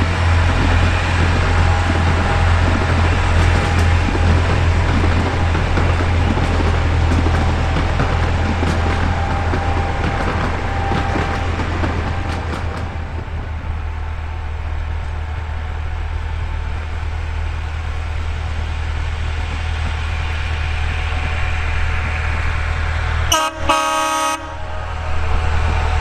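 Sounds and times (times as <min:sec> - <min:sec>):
diesel locomotive running: 0:00.0 - 0:26.0
locomotive horn: 0:23.3 - 0:25.5.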